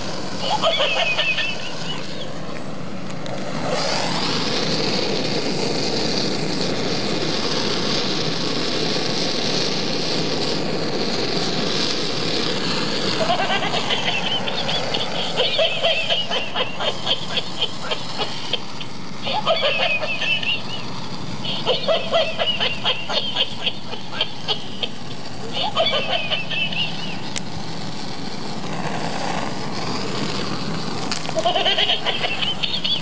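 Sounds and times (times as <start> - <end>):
blowtorch flame hissing: 0.0 - 33.0
short irregular pulses: 13.1 - 33.0.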